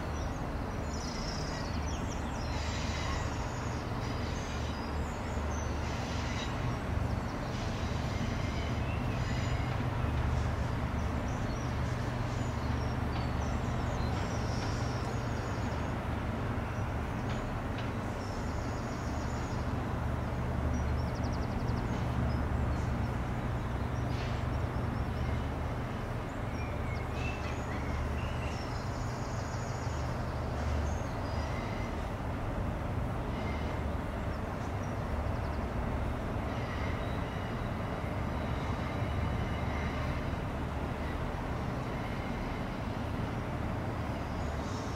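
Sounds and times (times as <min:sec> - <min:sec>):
small birds chirping: 0:17.2 - 0:25.4.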